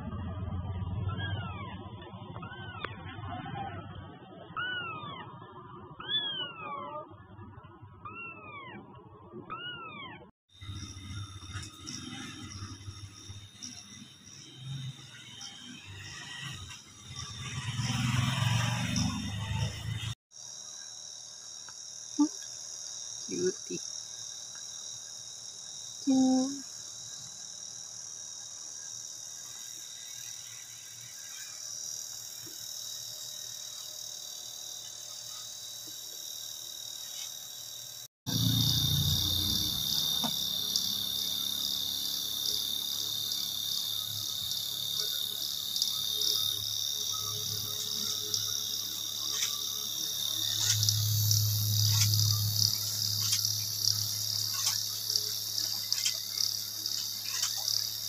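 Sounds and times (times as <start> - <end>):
insects chirring: 9.5 - 58.0.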